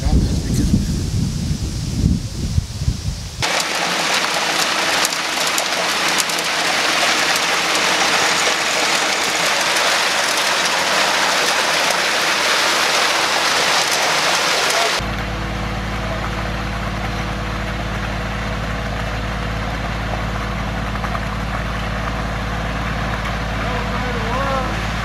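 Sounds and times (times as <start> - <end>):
wet concrete pouring: 3.4 - 15.0.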